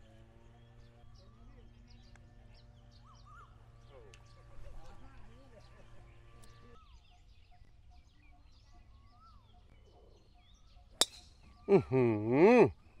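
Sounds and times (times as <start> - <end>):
faint bird chirps: 0.4 - 12.9
golf club striking ball: 11.0 - 11.4
person's drawn-out exclamation: 11.7 - 12.8.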